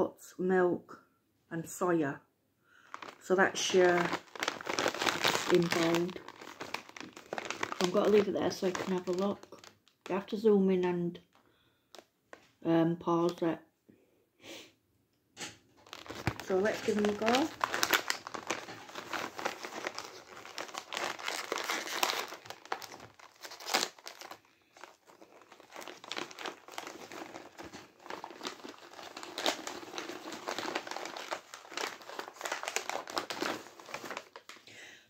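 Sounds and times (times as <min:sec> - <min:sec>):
plastic packet crinkling: 0:02.8 - 0:10.4, 0:15.8 - 0:34.6.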